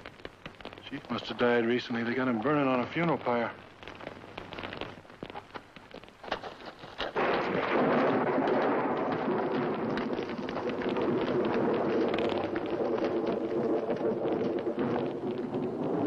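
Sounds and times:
heavy storm rumble: 0:07.1 - 0:16.0
thunder crash: 0:07.1 - 0:16.0.

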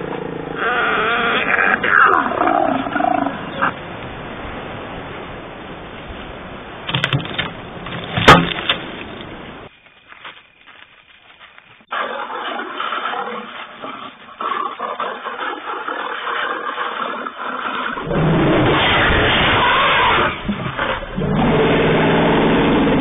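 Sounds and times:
loud pitched animal call: 0:00.5 - 0:03.8.

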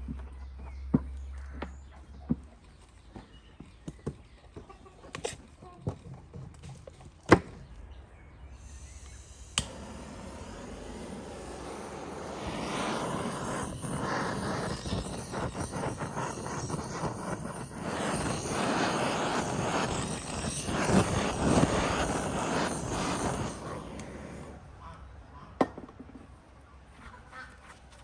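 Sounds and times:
gas torch flame hissing: 0:08.4 - 0:24.8.

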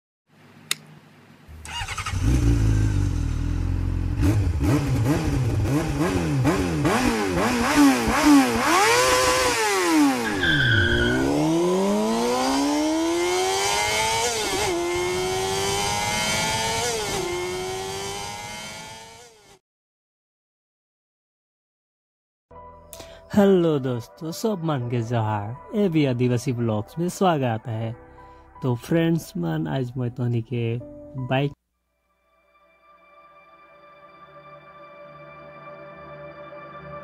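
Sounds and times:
high-revving engine: 0:01.5 - 0:19.6.

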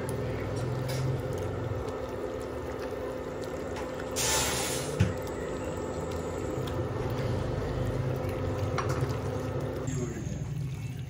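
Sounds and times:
brief hiss: 0:04.2 - 0:05.0.

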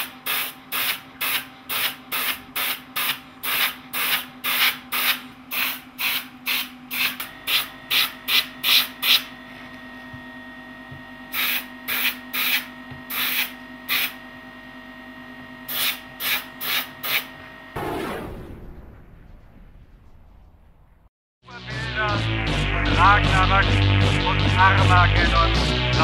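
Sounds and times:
steady mechanical hum: 0:00.0 - 0:21.1
airbrush hissing bursts: 0:00.3 - 0:09.3, 0:11.3 - 0:14.2.

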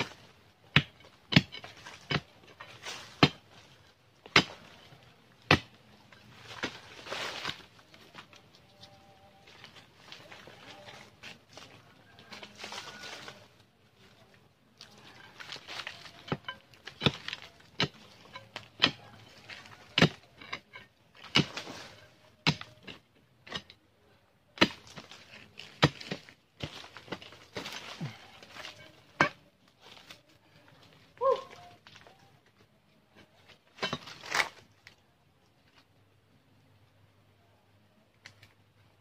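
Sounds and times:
dry leaves and earth rustling: 0:00.0 - 0:36.0
machete chopping into soil: 0:33.8 - 0:34.6.

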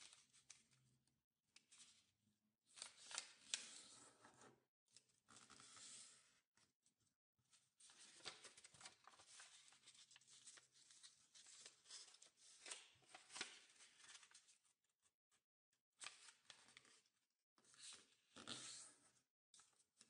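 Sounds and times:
paper rustling and crinkling: 0:07.8 - 0:14.6.

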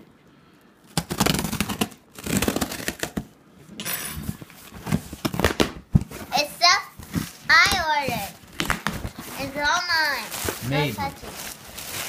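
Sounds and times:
tape tearing rasp: 0:00.9 - 0:03.2
knife scraping through packing tape: 0:01.0 - 0:03.2.

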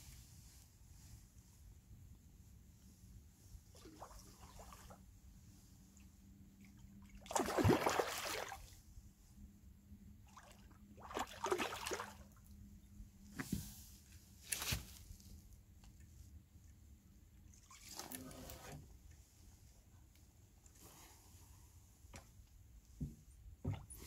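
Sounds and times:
water splashing and sloshing: 0:03.6 - 0:08.8, 0:10.2 - 0:12.6, 0:17.4 - 0:19.2, 0:23.6 - 0:24.0.

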